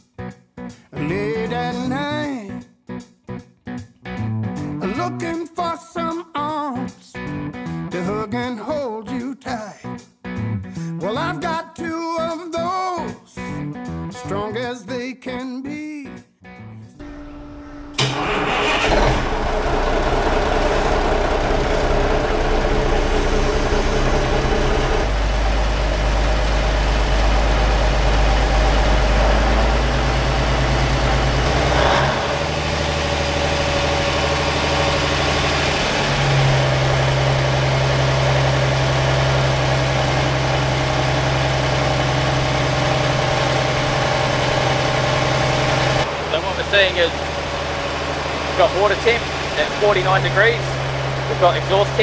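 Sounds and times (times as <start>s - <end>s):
diesel engine running: 17.0s - 52.0s.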